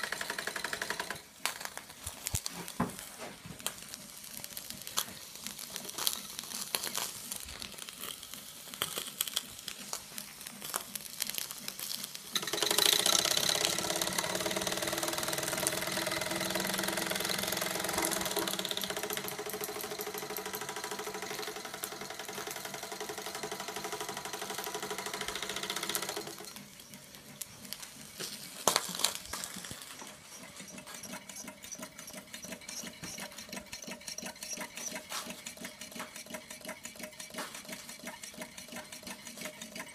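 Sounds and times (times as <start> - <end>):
model steam engine chattering: 10.6 - 39.9.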